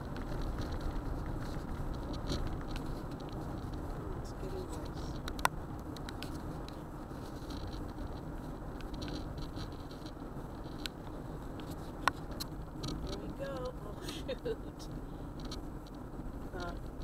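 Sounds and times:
car road and wind noise: 0.0s - 17.0s
light ticks: 4.8s - 16.0s.

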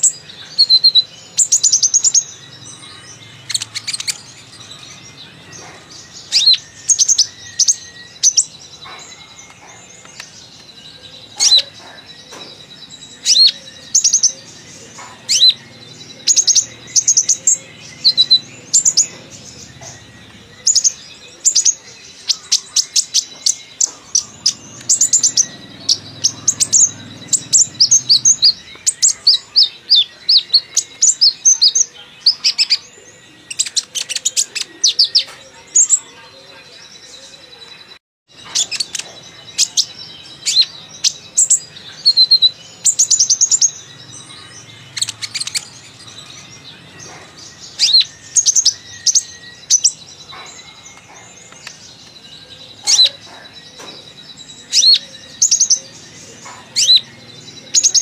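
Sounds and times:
bird chirping and twittering: 0.0s - 58.0s.

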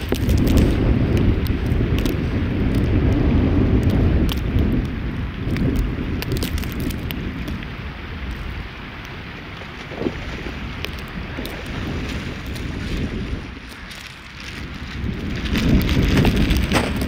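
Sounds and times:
wind buffeting microphone: 0.0s - 17.0s.

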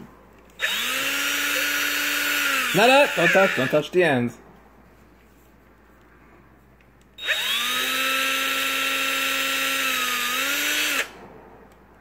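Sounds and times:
cordless drill motor whine: 0.6s - 3.8s, 7.2s - 11.2s.

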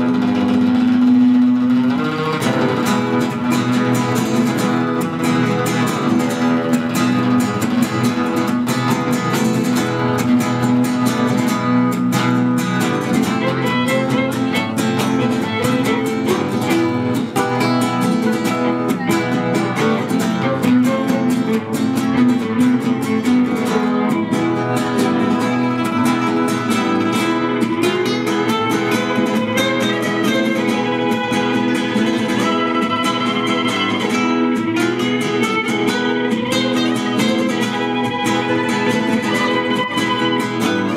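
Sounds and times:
acoustic guitars strumming: 0.0s - 40.9s
violin bowed: 12.8s - 40.9s.

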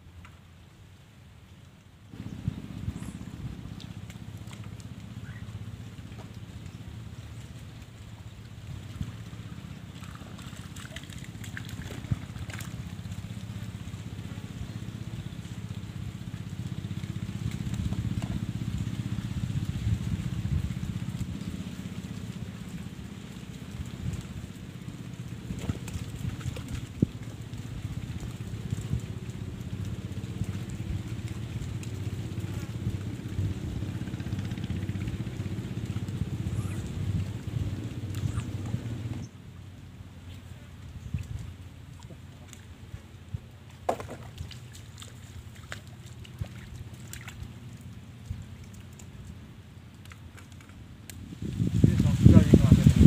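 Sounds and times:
small engine running: 11.3s - 39.3s.

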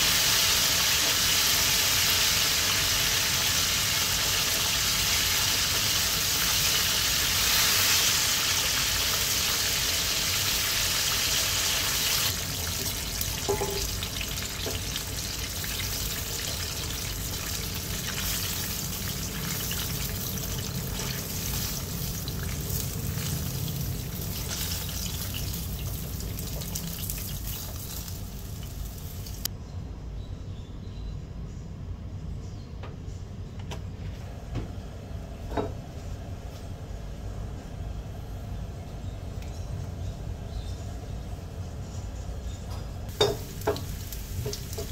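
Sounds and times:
chicken deep-frying in oil: 0.0s - 29.5s, 43.1s - 44.9s.

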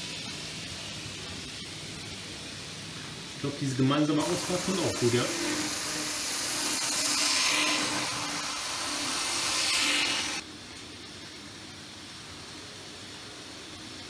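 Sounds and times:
steady hiss: 0.0s - 14.0s
model train motor whirring: 4.2s - 10.4s.

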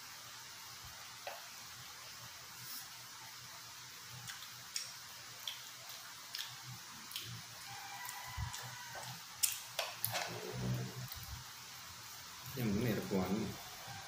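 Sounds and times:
wet chewing smacks: 4.2s - 7.4s.

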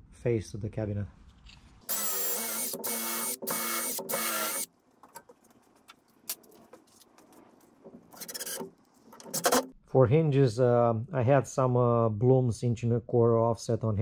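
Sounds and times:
cordless drill drilling wood: 1.9s - 4.7s
impact driver driving screw: 1.9s - 4.7s, 8.2s - 9.7s.

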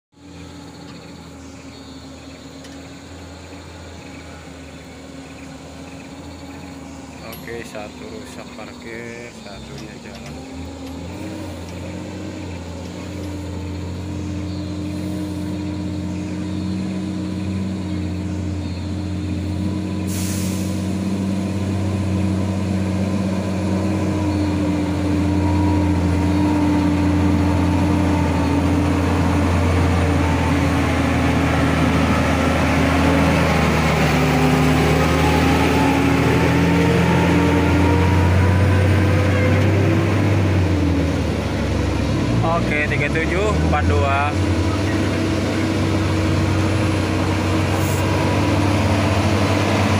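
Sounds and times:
truck diesel engine running: 0.1s - 49.9s
air brakes hissing: 14.8s - 15.7s, 19.9s - 21.1s.

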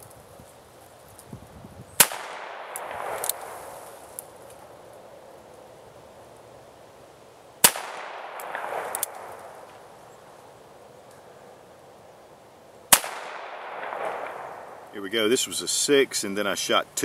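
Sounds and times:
revolver shots with echo: 2.0s - 3.5s, 7.6s - 9.6s, 12.9s - 14.8s.

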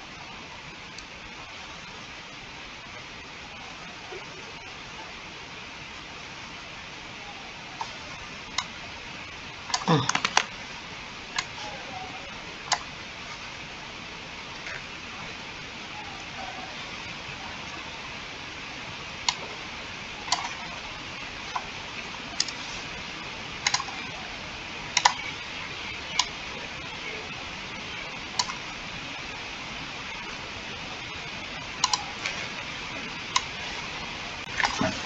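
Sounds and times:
background hiss: 0.0s - 35.0s
computer mouse clicking: 9.7s - 10.5s, 12.7s - 12.9s, 19.2s - 19.4s, 20.2s - 20.6s, 22.4s - 22.6s, 23.6s - 24.1s, 25.0s - 25.3s, 28.4s - 28.6s, 31.8s - 32.6s, 33.3s - 35.0s.

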